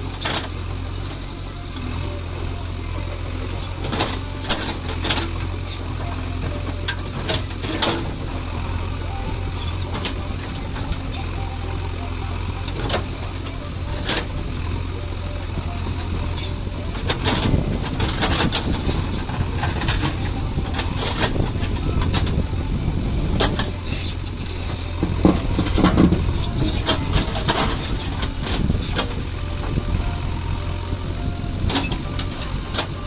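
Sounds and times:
diesel engine running under load: 0:00.0 - 0:33.0.

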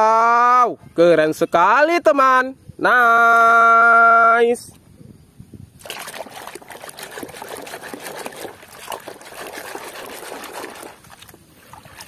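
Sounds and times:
water sloshing in a basin: 0:05.8 - 0:12.0.

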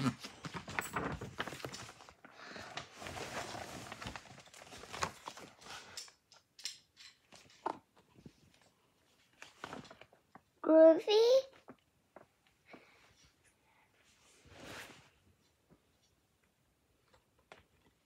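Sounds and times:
book pages turning: 0:00.0 - 0:06.0
paper rustling: 0:00.0 - 0:06.0, 0:07.6 - 0:10.2.

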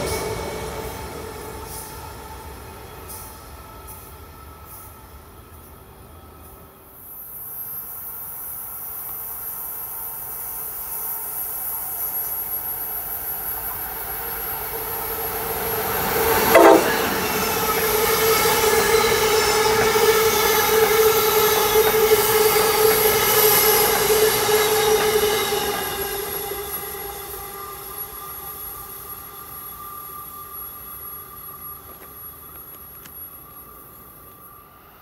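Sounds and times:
passenger train passing: 0:00.0 - 0:35.0
ringing tone over rail noise: 0:00.0 - 0:35.0
train horn blast: 0:16.3 - 0:20.6.

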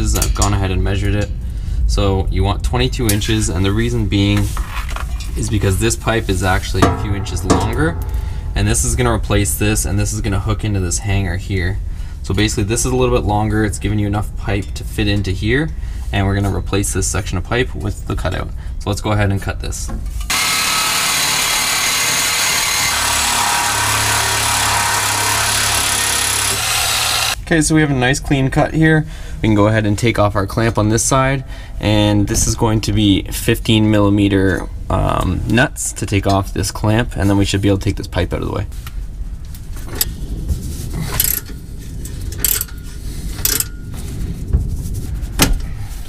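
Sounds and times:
reciprocating saw cutting metal pipe: 0:20.3 - 0:27.4.

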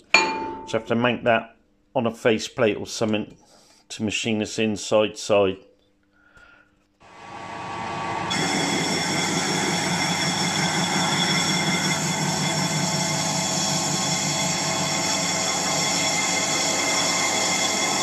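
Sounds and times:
high whine of cutting tool: 0:07.0 - 0:18.0
metal lathe machining: 0:07.1 - 0:18.0.

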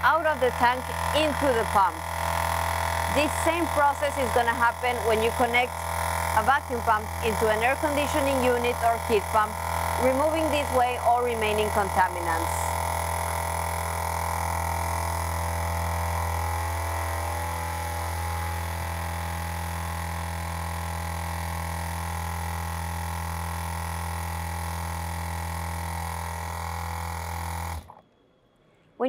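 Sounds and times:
vacuum pump droning: 0:00.0 - 0:28.0.

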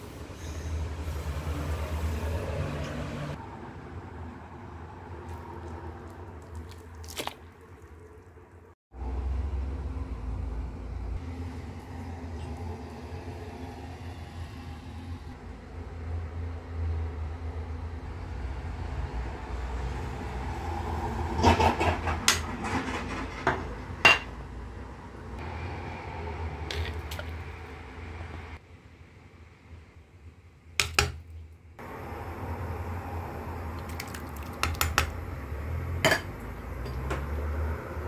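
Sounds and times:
utensil clinking on pot: 0:36.0 - 0:37.1.

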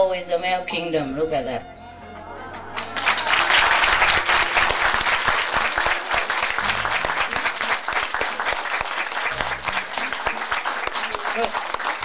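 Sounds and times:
audience applauding: 0:02.3 - 0:12.0.

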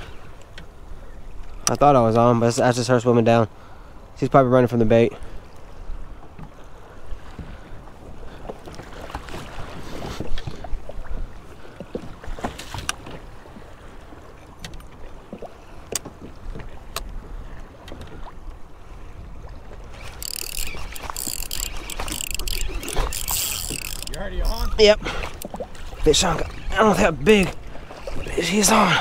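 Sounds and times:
water lapping against hull: 0:00.0 - 0:29.0
wind: 0:00.0 - 0:29.0
fishing reel drag buzzing: 0:19.9 - 0:27.2.

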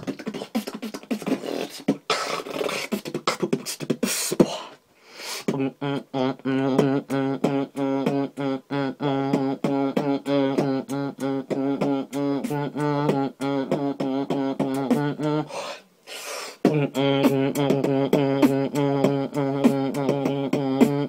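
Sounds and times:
beatboxing mouth clicks and snares: 0:00.0 - 0:21.0
breathy hissing: 0:00.5 - 0:05.5, 0:15.4 - 0:16.7.

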